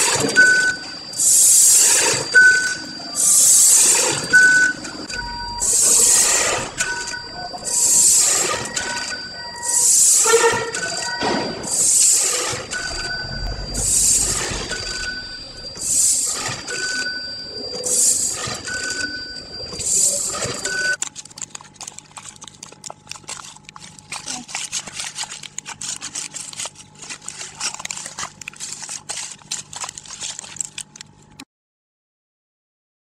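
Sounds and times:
packaging machine hiss: 0:00.0 - 0:31.1
low machine hum: 0:00.1 - 0:12.0, 0:12.6 - 0:21.0
short high tone: 0:05.0 - 0:11.4, 0:12.7 - 0:16.1
plastic pouch crinkling: 0:21.0 - 0:31.4.

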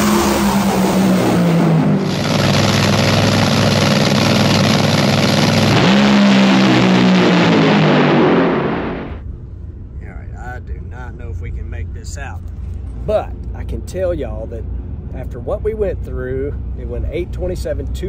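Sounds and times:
dragster engine at full throttle: 0:00.0 - 0:09.2.

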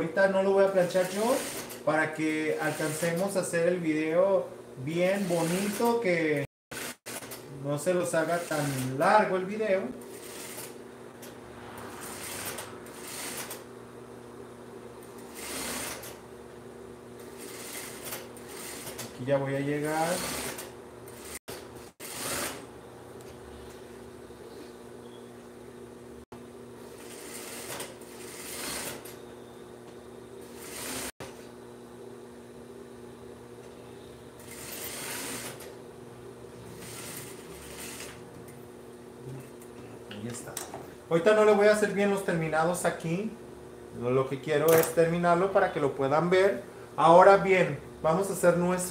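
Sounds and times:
sewing machine stitching: 0:00.8 - 0:01.9, 0:05.0 - 0:06.0, 0:06.7 - 0:07.4, 0:10.1 - 0:10.8, 0:12.0 - 0:13.6, 0:15.2 - 0:16.2, 0:17.2 - 0:19.2, 0:19.8 - 0:22.7, 0:27.0 - 0:29.2, 0:30.4 - 0:31.2, 0:34.4 - 0:35.8, 0:36.7 - 0:38.2
steady hum: 0:07.4 - 0:48.9
steady low hum: 0:22.6 - 0:35.0.

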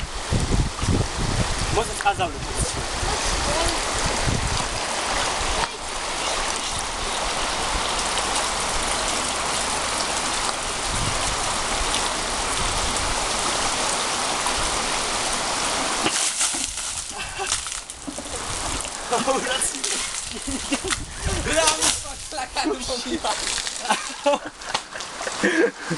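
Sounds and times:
running water rushing: 0:00.0 - 0:25.9
bucket of water splashing: 0:15.7 - 0:24.2.

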